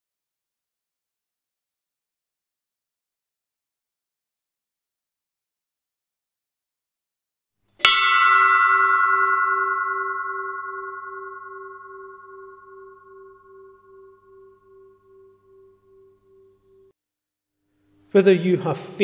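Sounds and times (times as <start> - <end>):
ship's bell ringing: 7.8 - 16.9.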